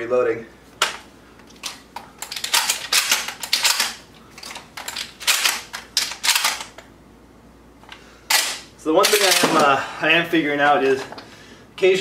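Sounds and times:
shotgun shells clicking into magazine: 1.6s - 6.7s.

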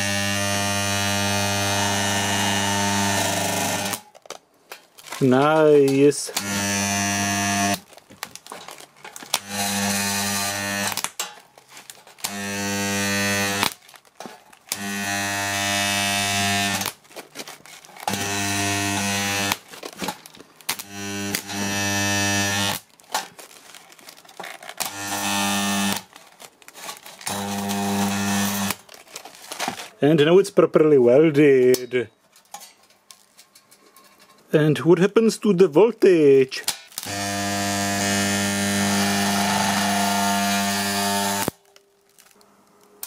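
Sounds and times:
spot welder buzzing: 0.0s - 4.1s, 5.8s - 7.9s, 9.2s - 11.4s, 12.2s - 17.1s, 18.0s - 22.9s, 24.6s - 26.2s, 27.2s - 28.9s, 36.7s - 41.7s.

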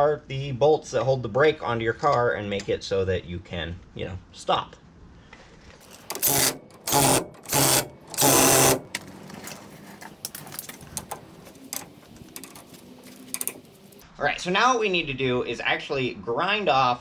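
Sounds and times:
impact wrench bursts: 5.8s - 9.0s
hand wrench metallic clicks: 13.3s - 13.7s.

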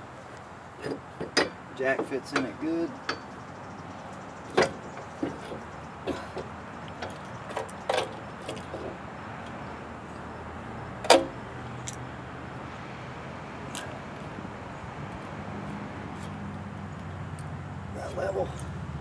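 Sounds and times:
metallic clanks and knocks: 0.8s - 3.4s, 4.5s - 9.0s, 11.0s - 11.4s.

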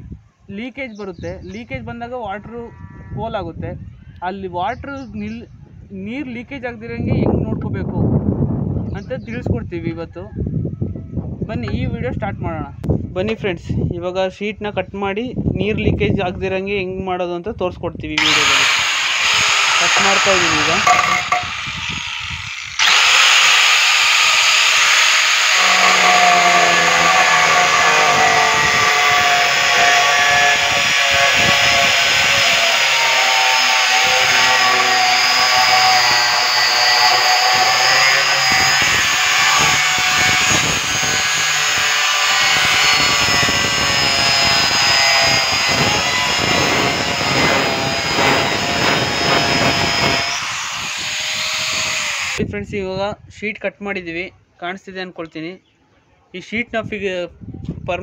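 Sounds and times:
angle grinder cutting roofing sheet: 18.2s - 52.4s.

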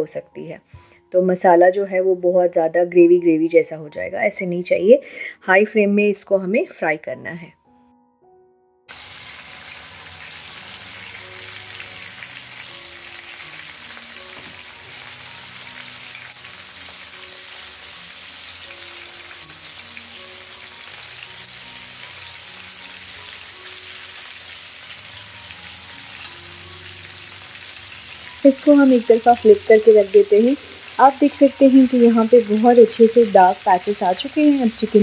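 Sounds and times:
chicken sizzling in hot oil: 8.9s - 35.0s.

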